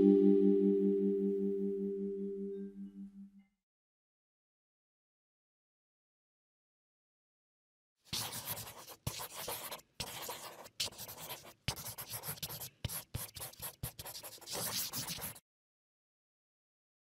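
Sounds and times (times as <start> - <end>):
marker scratching on paper: 8.1 - 15.4.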